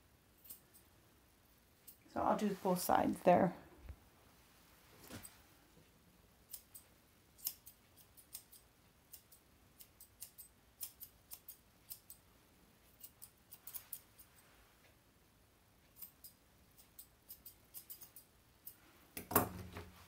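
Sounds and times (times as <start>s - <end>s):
grooming shears snipping hair: 6.4s - 14.5s, 15.9s - 18.8s.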